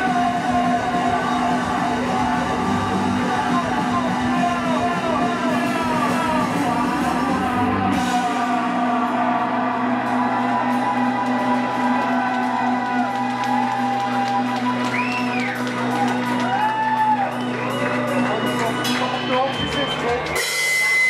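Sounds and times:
rock band chord ringing: 0.0s - 13.2s.

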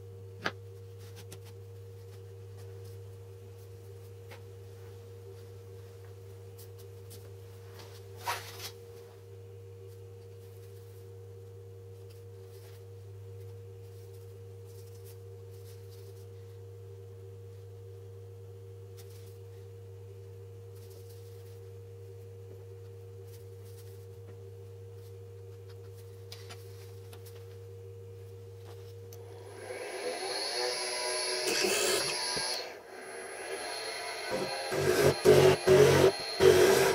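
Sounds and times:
electrical hum: 0.0s - 36.9s
high whine: 29.1s - 36.9s.

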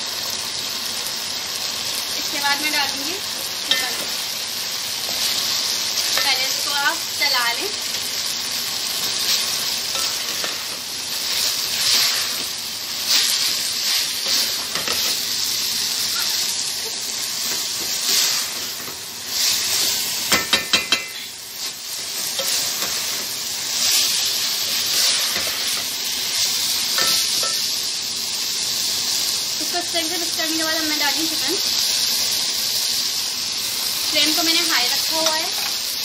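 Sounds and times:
vegetables sizzling in a pan: 0.0s - 36.0s
spatula stirring vegetables: 1.7s - 28.4s
spatula clinking against pan: 20.3s - 21.3s.

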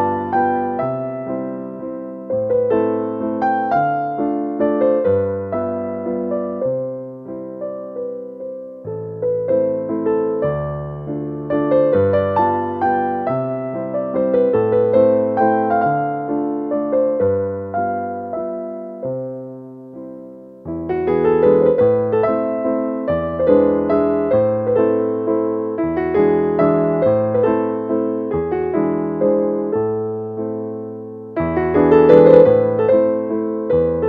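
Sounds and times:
gentle piano music: 0.0s - 34.0s.

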